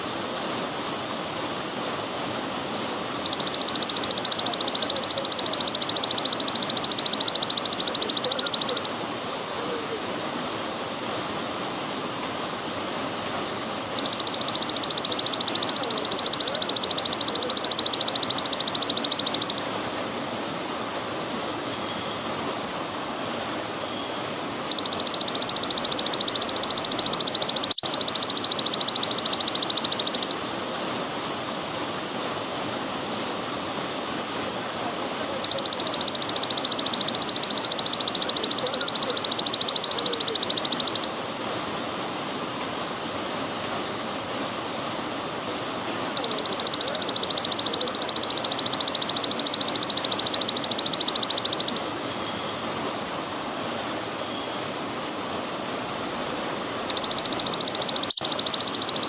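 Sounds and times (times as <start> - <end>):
grasshopper pulsing trill: 3.2 - 9.0, 13.9 - 19.7, 24.6 - 30.4, 35.4 - 41.1, 46.1 - 51.8, 56.8 - 59.0.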